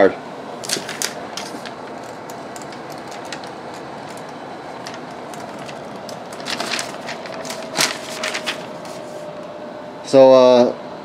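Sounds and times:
air purifier fan rushing: 0:00.0 - 0:11.0
paper rustling: 0:00.6 - 0:09.4.

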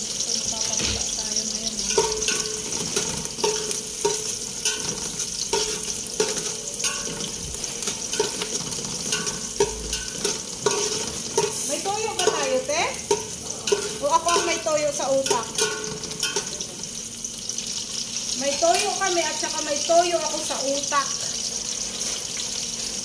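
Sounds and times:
food sizzling in a pan: 0:00.0 - 0:23.0
metal spatula clinking on a pan: 0:01.7 - 0:16.8.

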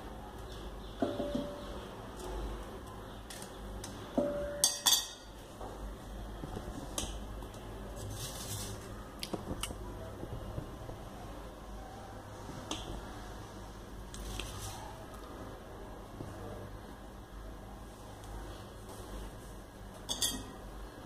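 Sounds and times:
steel bowls and knife clinking: 0:04.2 - 0:05.4, 0:20.0 - 0:20.6.

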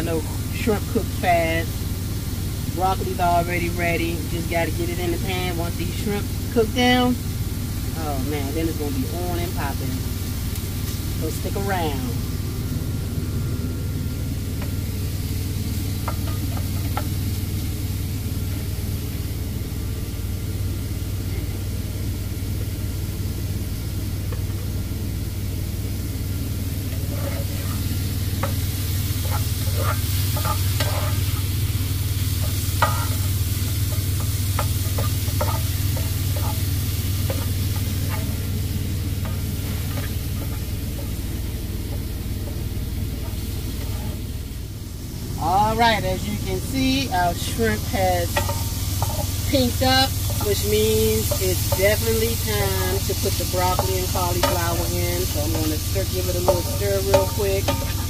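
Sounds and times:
shrimp and onions sizzling: 0:00.0 - 0:58.0
steady low hum: 0:00.0 - 0:58.0
spoon scraping and tapping pan: 0:26.9 - 0:31.4, 0:32.4 - 0:38.5, 0:39.2 - 0:41.2, 0:48.3 - 0:58.0.

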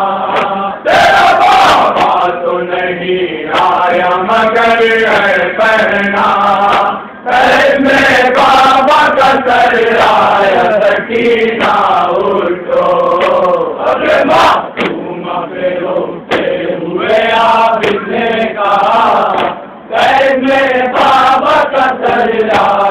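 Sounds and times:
men chanting a lament: 0:00.0 - 0:22.9
chest-beating slaps: 0:00.3 - 0:00.6, 0:01.4 - 0:02.3, 0:06.6 - 0:07.0, 0:11.6 - 0:12.0, 0:13.1 - 0:13.6, 0:14.2 - 0:15.1, 0:16.3 - 0:16.6, 0:19.2 - 0:19.7, 0:22.0 - 0:22.8.

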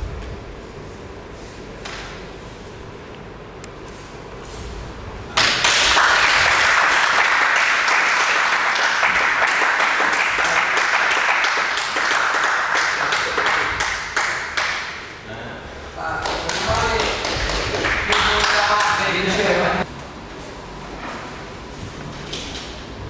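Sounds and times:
audience applauding: 0:05.4 - 0:14.9, 0:16.2 - 0:19.0.

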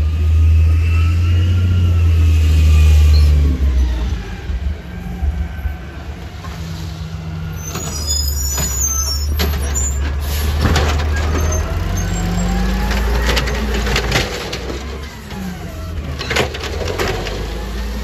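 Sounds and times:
garbage truck diesel engine: 0:00.0 - 0:18.0
high squeaks: 0:07.5 - 0:12.8.

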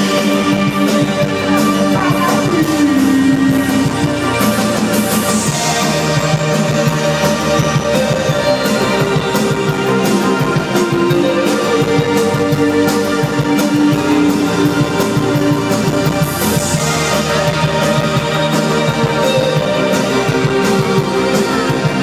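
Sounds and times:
drum kit: 0:00.0 - 0:22.0
electric guitar: 0:00.0 - 0:22.0
keyboard: 0:00.0 - 0:22.0.

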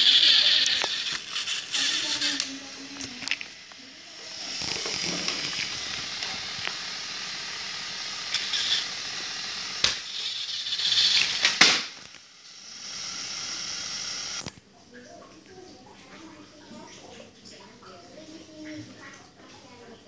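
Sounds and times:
toy train motor whir: 0:00.0 - 0:14.5.

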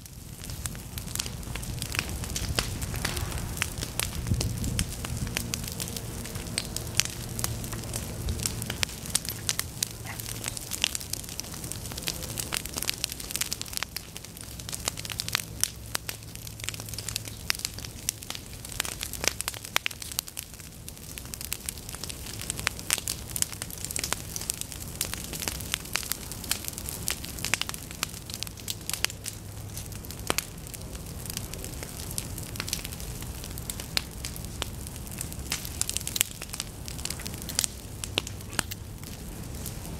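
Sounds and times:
low steady hum: 0:00.0 - 0:18.8
fire crackling with pops and snaps: 0:00.0 - 0:39.9.

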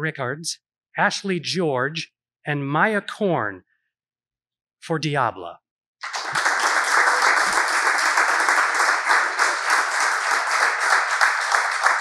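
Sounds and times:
audience applauding: 0:06.0 - 0:12.0.

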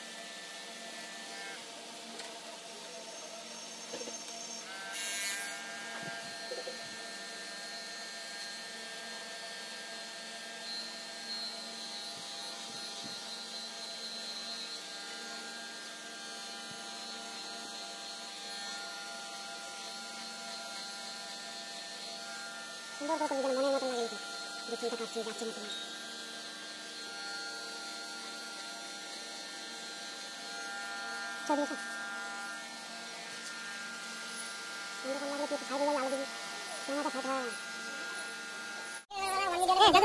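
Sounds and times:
electric hair clipper buzzing: 0:00.0 - 0:40.0.

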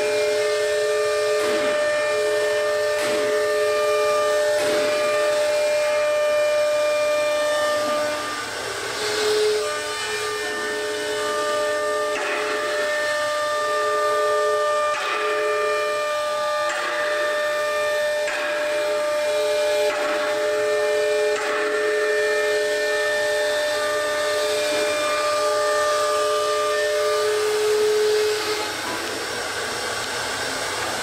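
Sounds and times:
router spindle whine: 0:00.0 - 0:31.0
cutting hiss: 0:00.2 - 0:13.7.

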